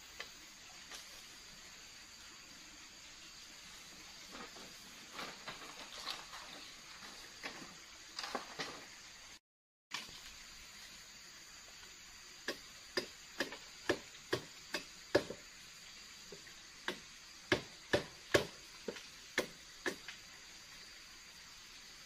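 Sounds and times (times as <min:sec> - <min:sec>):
wood being chopped: 0:12.4 - 0:15.4, 0:16.8 - 0:20.1.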